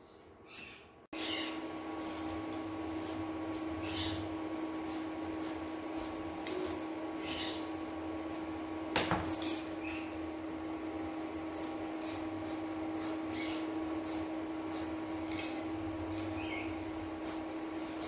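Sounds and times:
steady low hum: 1.1s - 18.0s
knife scraping gourd skin: 1.9s - 4.2s, 12.1s - 15.0s.

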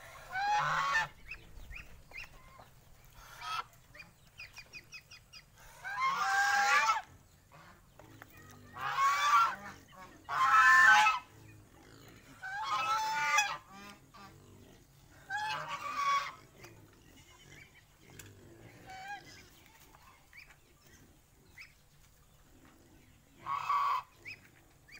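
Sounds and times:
goose honking: 0.0s - 1.4s, 5.8s - 7.8s, 8.7s - 11.3s, 12.4s - 14.4s, 15.3s - 16.4s, 23.4s - 24.4s.

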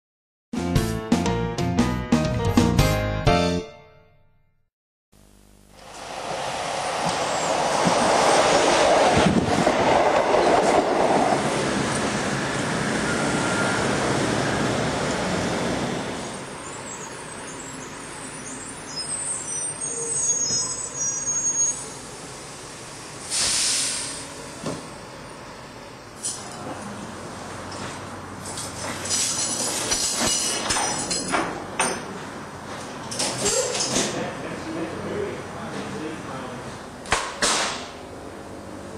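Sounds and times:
tram running on track: 5.8s - 37.0s
tram wheels squealing: 6.4s - 22.4s
short hiss: 23.3s - 24.3s.

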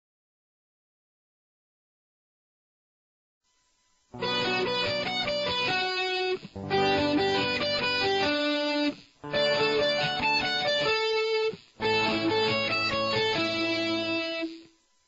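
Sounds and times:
electric guitar arpeggios: 4.2s - 14.7s.

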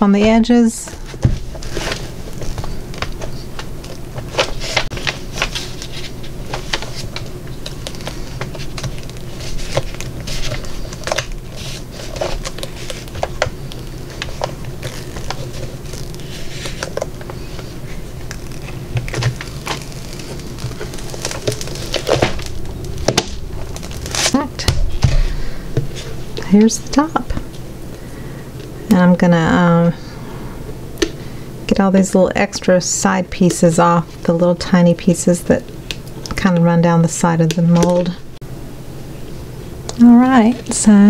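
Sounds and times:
steady low hum: 0.0s - 41.0s
silicone mold crackling and clicking: 18.2s - 24.8s.

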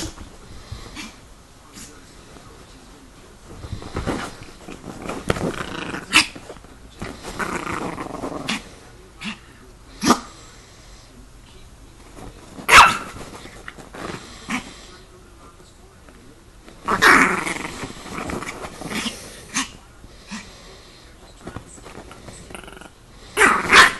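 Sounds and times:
dog growling: 4.1s - 9.4s, 16.8s - 20.5s, 22.4s - 23.9s
dog yapping: 12.7s - 13.2s, 23.4s - 23.9s.

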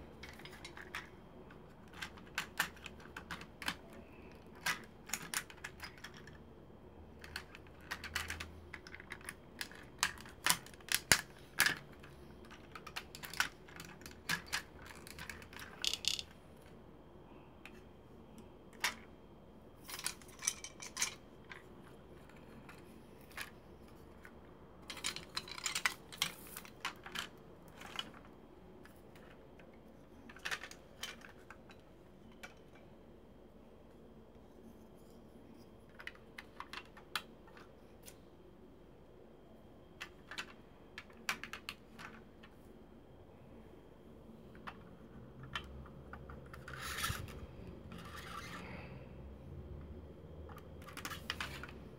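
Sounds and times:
plastic toy parts clicking: 0.2s - 6.4s, 7.2s - 16.8s, 19.8s - 29.7s, 30.3s - 32.8s, 35.9s - 38.2s, 40.0s - 42.5s, 50.5s - 51.9s.

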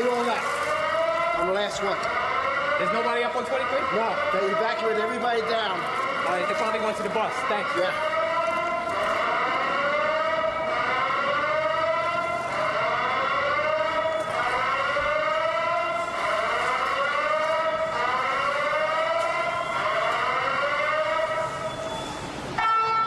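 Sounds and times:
alarm whooping: 0.0s - 23.0s.

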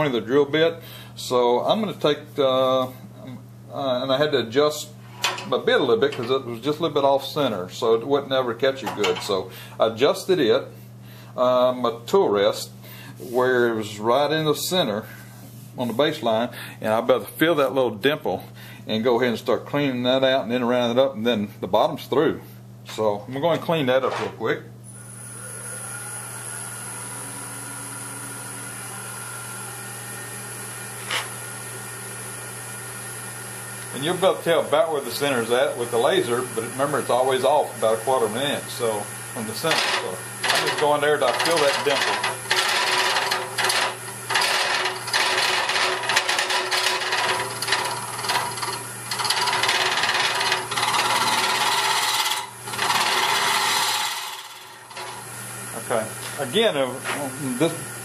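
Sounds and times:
wood lathe motor humming: 25.0s - 57.8s
cutter scraping wood: 39.4s - 55.2s.

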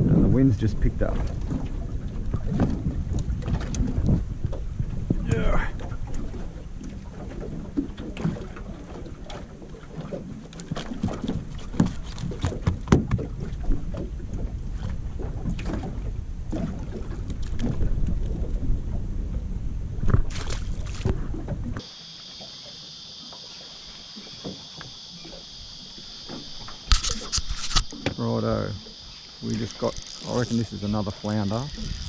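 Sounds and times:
wind buffeting microphone: 0.0s - 9.2s, 10.9s - 21.8s, 28.8s - 32.0s
knocks and rattles of fish handling: 1.1s - 19.0s, 20.0s - 21.8s
steady hiss: 21.8s - 32.0s.

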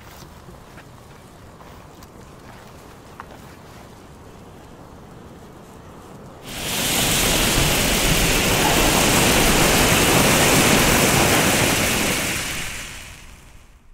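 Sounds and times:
flare burning with loud hiss: 6.4s - 13.9s.

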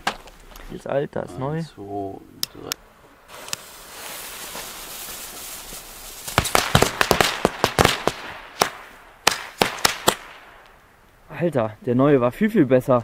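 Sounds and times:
hissing spray of sparks: 3.3s - 8.8s
firecracker bangs: 3.3s - 10.7s.

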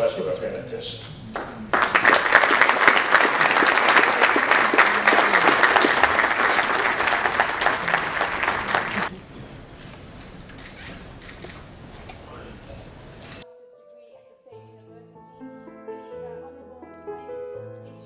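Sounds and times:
audience applauding: 1.3s - 9.1s.

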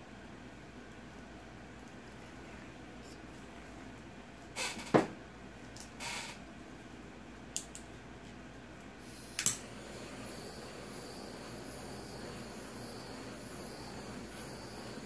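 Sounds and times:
electric mini blower whirring: 9.2s - 15.0s.

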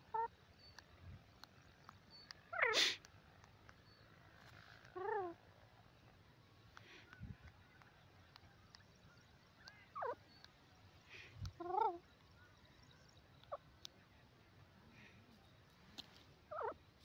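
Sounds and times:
francolin calling: 9.0s - 13.8s, 16.5s - 16.8s.

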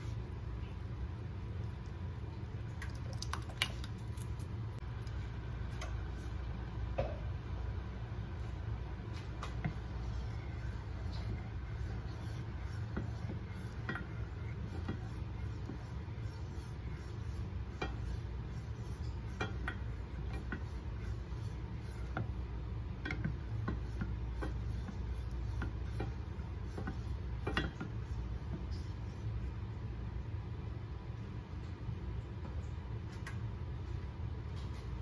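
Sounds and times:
steady low hum: 0.0s - 35.0s
spoon stirring sauce in saucepan: 8.2s - 29.7s.

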